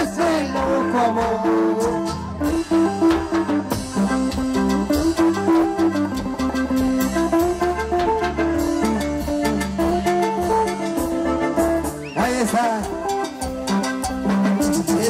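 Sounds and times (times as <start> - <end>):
bass: 0.0 - 15.0
plucked guitar melody: 0.0 - 15.0
steady drum beat: 0.0 - 15.0.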